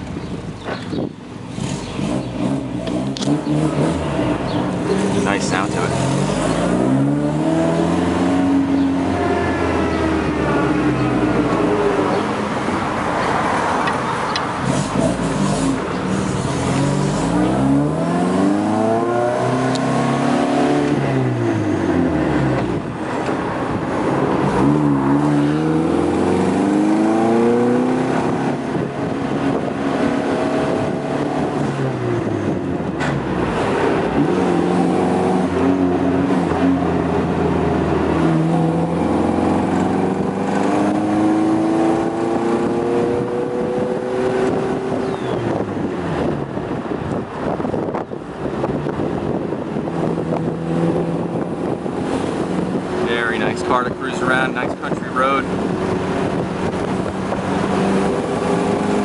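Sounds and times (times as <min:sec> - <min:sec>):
car engine revving through gears: 0:00.7 - 0:59.0.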